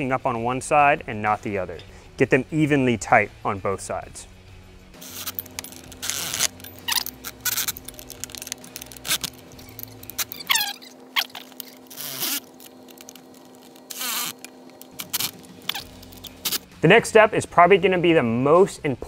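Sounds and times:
wrenches and metal hardware clattering: 5.0s - 16.6s
electric ratchet whining: 5.0s - 16.7s.

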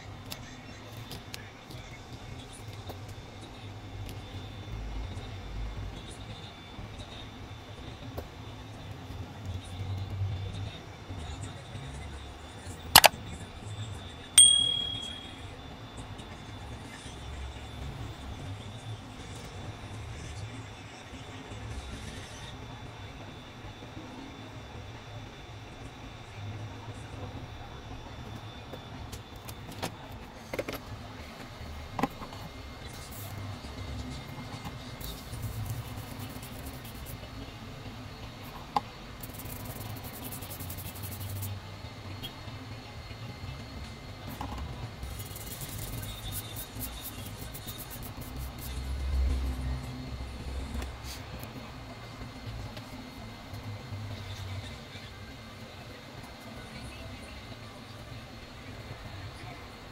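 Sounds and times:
hot air station blowing hum: 0.0s - 59.9s
sharp click: 13.0s - 13.2s
metal tool ding: 14.4s - 15.4s
low steady hum: 14.4s - 15.6s
brush scrubbing circuit board: 35.0s - 37.2s, 39.2s - 41.5s, 45.0s - 48.8s.

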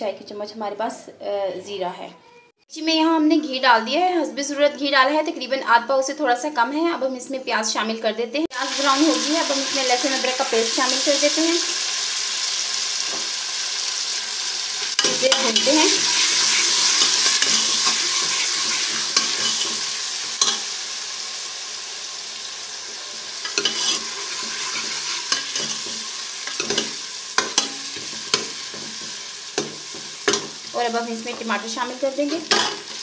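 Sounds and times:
onions sizzling in a pan: 8.5s - 33.0s
utensil scraping a pan: 14.9s - 20.7s, 23.4s - 30.7s.

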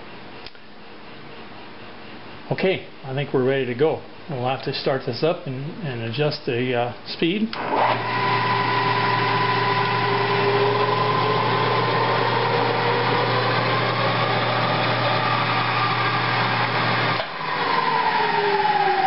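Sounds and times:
spindle whine: 7.5s - 19.0s
drill press motor humming: 7.6s - 19.0s.

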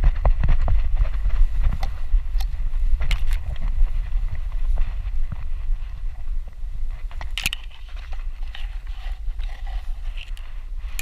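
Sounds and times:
stems crackling on camera case: 0.0s - 3.8s, 6.9s - 11.0s
grass rustling against camera: 0.0s - 11.0s
wind rumble on microphone: 0.0s - 11.0s.

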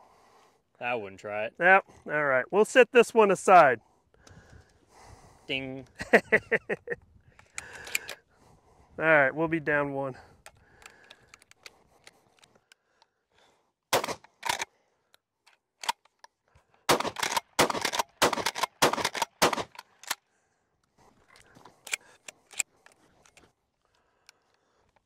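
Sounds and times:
shells clicking into magazine: 7.4s - 8.2s, 14.0s - 14.7s, 15.4s - 16.3s, 16.9s - 20.2s, 21.3s - 23.5s
shotgun pump clacks: 7.4s - 8.2s, 14.0s - 14.7s, 16.9s - 20.2s
shotgun shots: 13.9s - 14.6s, 16.9s - 19.8s.

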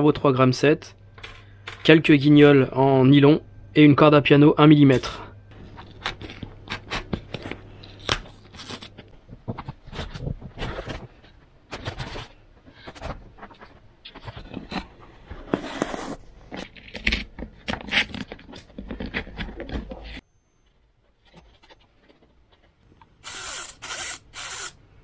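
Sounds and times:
craft knife cutting foam: 23.2s - 24.8s.

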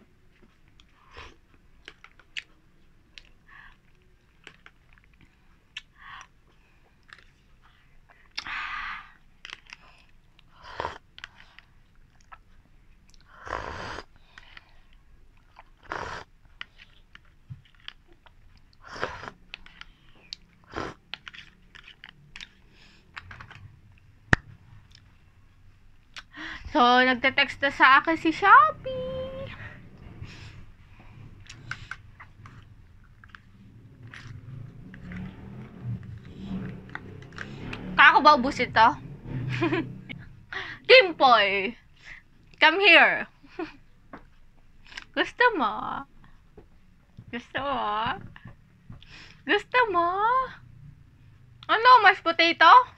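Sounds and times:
chewing: 0.4s - 24.0s, 31.4s - 37.9s.

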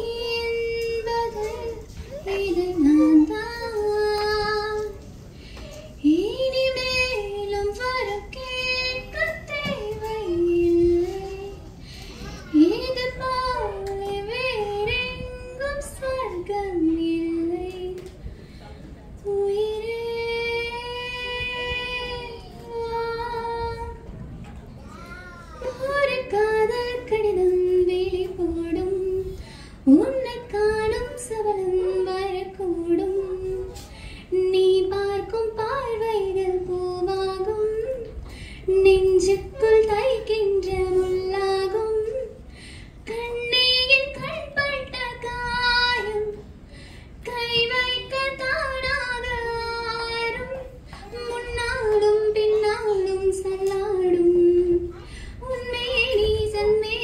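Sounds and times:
woman singing into microphone: 0.0s - 18.3s, 19.1s - 24.2s, 25.6s - 57.0s.

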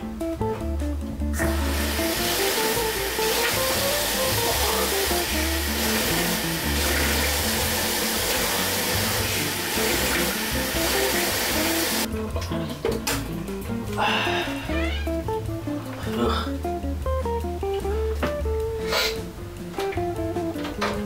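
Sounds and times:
guitar music: 0.0s - 21.0s
water running from a tap: 1.4s - 12.1s.

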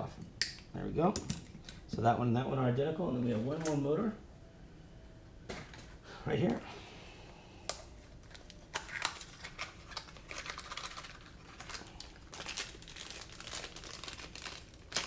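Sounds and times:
plastic bag crinkling: 8.2s - 15.0s.

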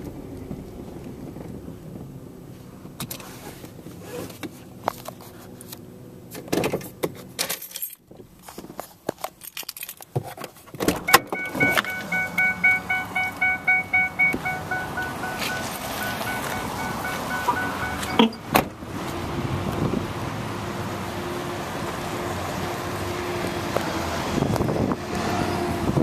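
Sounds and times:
car warning chime pinging: 11.0s - 18.6s
clicks and knocks of car door: 17.4s - 18.8s.

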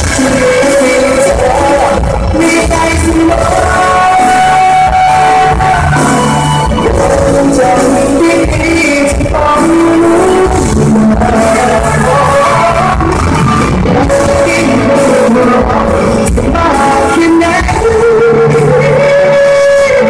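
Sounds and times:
live band playing: 0.0s - 20.0s
man singing into microphone: 0.0s - 20.0s.

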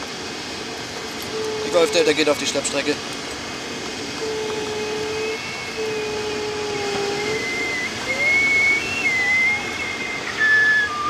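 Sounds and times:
low steady tone: 1.1s - 2.1s, 4.2s - 11.0s
higher tone shifting in pitch: 1.3s - 2.2s, 4.2s - 11.0s.

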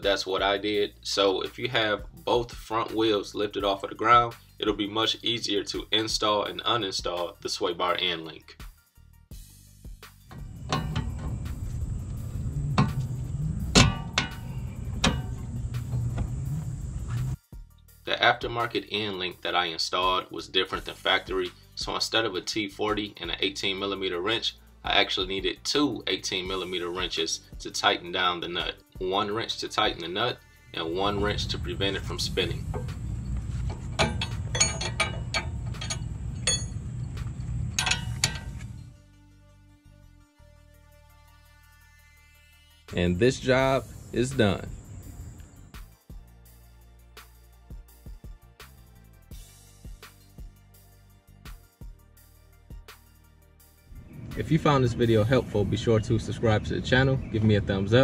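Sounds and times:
steady low hum: 10.3s - 17.4s, 30.8s - 39.0s, 43.0s - 45.7s, 53.9s - 56.4s
steady low rumble: 10.4s - 17.4s, 30.8s - 39.0s, 53.9s - 56.9s
wrench clicking on metal nut: 34.0s - 36.8s, 37.7s - 38.7s.

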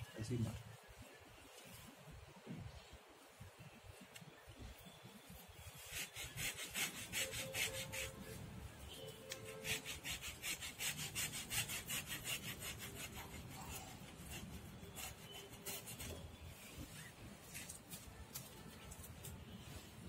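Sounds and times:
metal tool scraping roots: 9.2s - 16.4s.

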